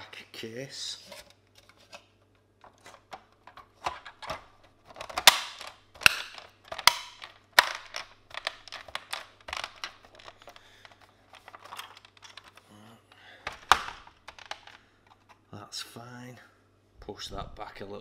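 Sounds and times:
plastic clicks and knocks: 0:02.6 - 0:12.6, 0:13.4 - 0:15.2
plastic clips snapping: 0:03.1 - 0:10.7.

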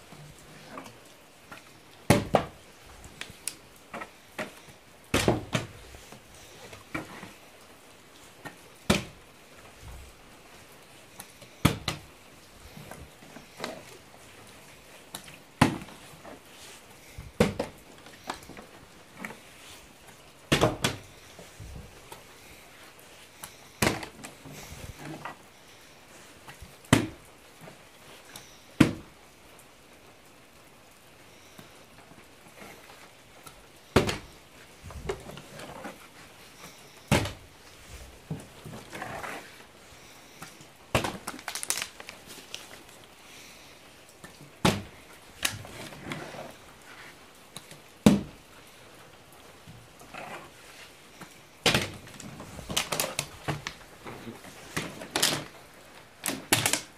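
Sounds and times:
plastic bottle landing on hard floor: 0:44.6 - 0:44.9.

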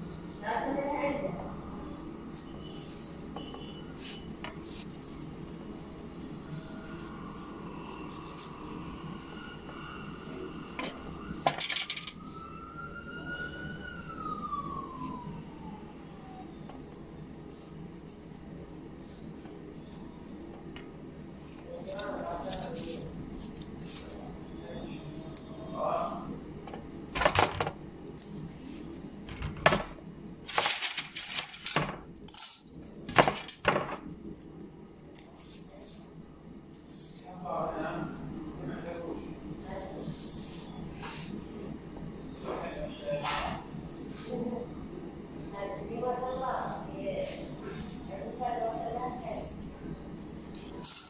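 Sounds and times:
siren wailing: 0:06.4 - 0:17.0.

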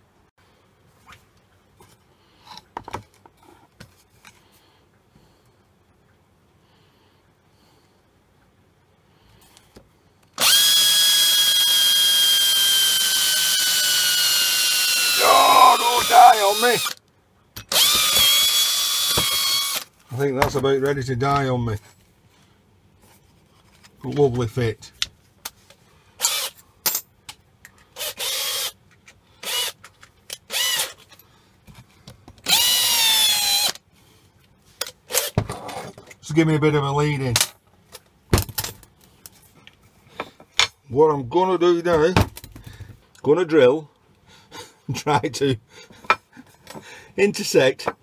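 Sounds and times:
power drill boring into wood: 0:10.4 - 0:17.0, 0:17.7 - 0:19.9, 0:26.2 - 0:26.6, 0:28.0 - 0:28.8, 0:29.4 - 0:29.8, 0:30.5 - 0:31.0, 0:32.4 - 0:33.8.

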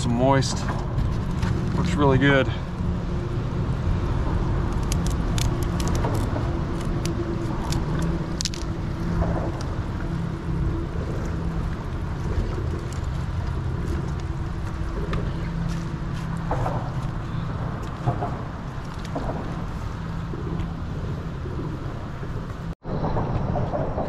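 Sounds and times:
low rumble: 0:00.0 - 0:24.0
scissors snipping crab shell: 0:04.7 - 0:08.7.

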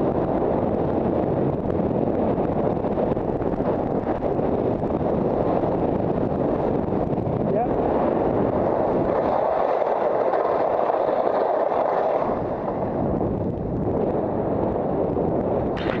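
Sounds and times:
wind on microphone: 0:00.0 - 0:16.0
skis scraping on snow: 0:07.9 - 0:13.0.

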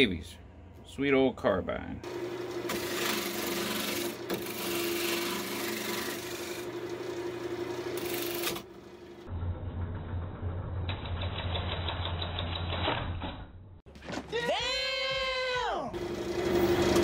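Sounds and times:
lathe motor hum: 0:02.1 - 0:09.3
lathe tool scraping wood: 0:02.4 - 0:08.7.

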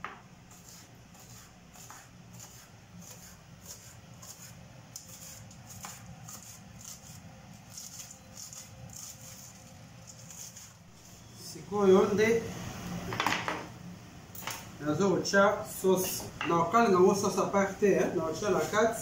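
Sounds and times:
knife slicing green onions: 0:00.5 - 0:10.8.

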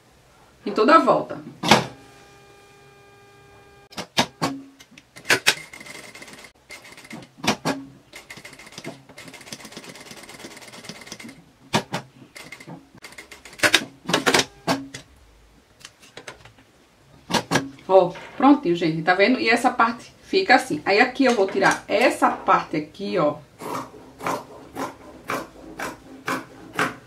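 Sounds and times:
sewing machine stitching: 0:05.2 - 0:15.0, 0:23.6 - 0:27.0
sharp clicks and knocks: 0:23.6 - 0:27.0.

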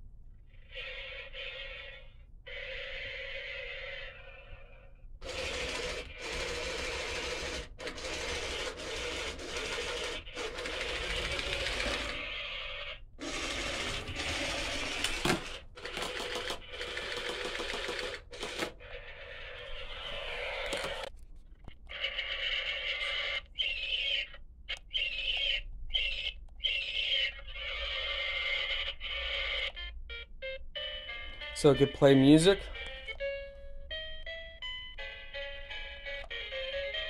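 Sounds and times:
toy motor whirring: 0:00.6 - 0:21.1.

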